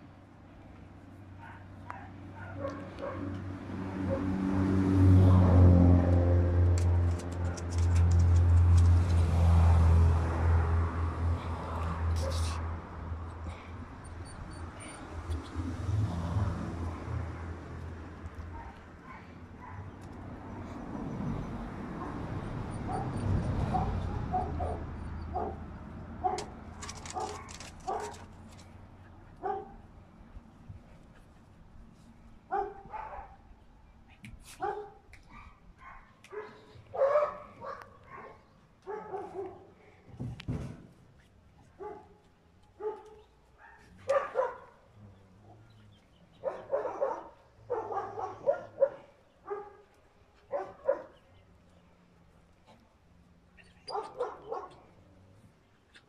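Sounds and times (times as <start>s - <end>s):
dog barking in high yips: 26.2s - 28.2s, 34.6s - 39.6s, 42.8s - 44.7s, 46.4s - 49.8s, 53.8s - 54.8s.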